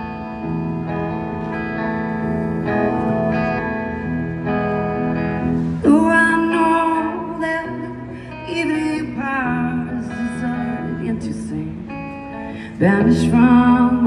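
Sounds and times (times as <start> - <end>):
sustained guitar chords: 0.0 - 14.0
woman singing into a microphone: 5.8 - 14.0.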